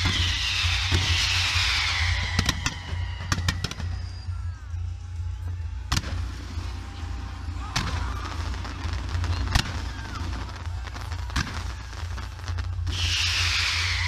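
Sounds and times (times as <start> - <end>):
firework bangs: 0.0 - 4.3, 5.9 - 14.0
firework fountains hissing: 0.0 - 4.6, 5.9 - 14.0
firework whistles falling: 0.0 - 4.6, 7.8 - 14.0.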